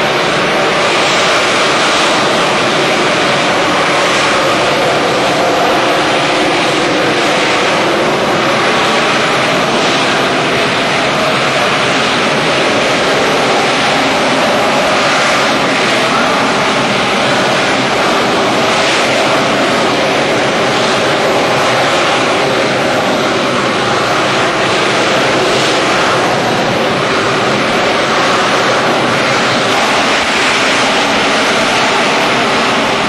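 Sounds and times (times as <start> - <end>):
jet engine roaring: 0.0 - 33.0.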